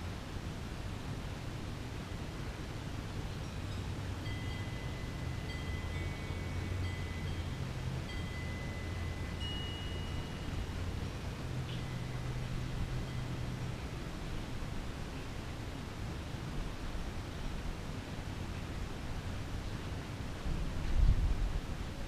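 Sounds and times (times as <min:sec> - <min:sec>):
low hum and hiss: 0:00.0 - 0:22.0
ringing chimes: 0:03.4 - 0:13.6.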